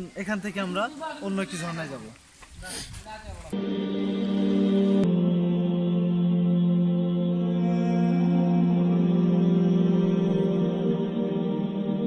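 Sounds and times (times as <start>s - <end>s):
slow new-age music tones: 3.6s - 12.0s.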